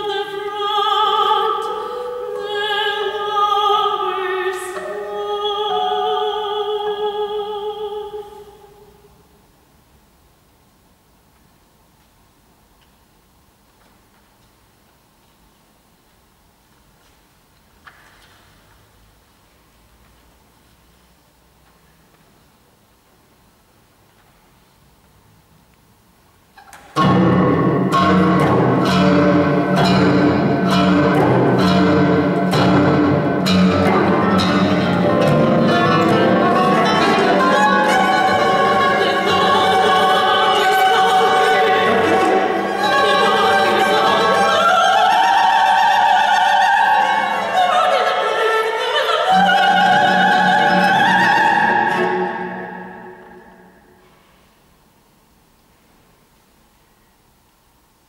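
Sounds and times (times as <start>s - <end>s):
woman singing: 0.0s - 9.0s, 28.0s - 53.4s
guitar chords: 27.0s - 44.1s
cello: 27.0s - 53.6s.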